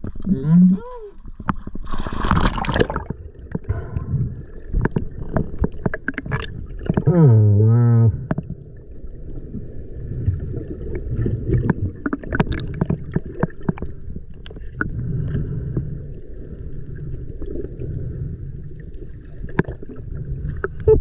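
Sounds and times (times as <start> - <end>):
underwater rumble: 0.0 - 21.0
sharp clicks and crackles: 4.7 - 7.1.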